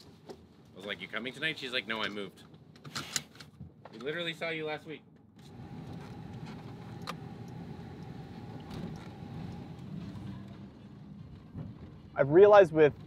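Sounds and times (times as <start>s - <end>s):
engine and road rumble: 0.0s - 13.0s
faint steady whine: 5.4s - 11.7s.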